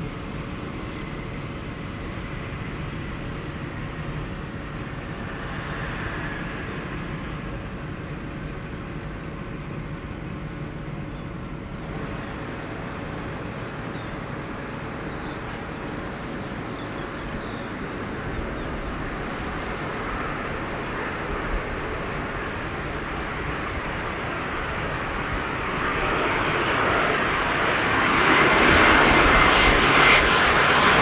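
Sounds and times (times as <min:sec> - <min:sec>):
jet aircraft rumble: 0:00.0 - 0:31.0.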